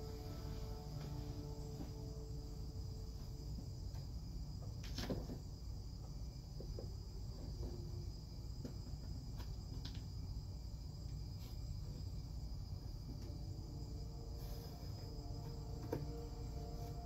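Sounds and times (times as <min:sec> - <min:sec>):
high-pitched whine: 0:00.0 - 0:04.2, 0:12.6 - 0:17.0
low hum: 0:00.0 - 0:17.0.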